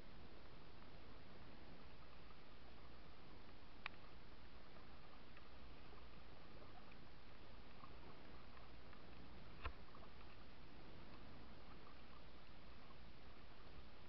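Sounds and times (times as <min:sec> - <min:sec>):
faint ticks: 0:00.0 - 0:14.0
paddle water noise: 0:00.0 - 0:14.0.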